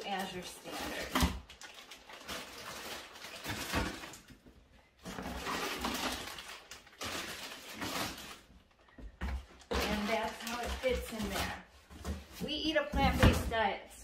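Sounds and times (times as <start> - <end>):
plastic bags crinkling: 0.0 - 11.9.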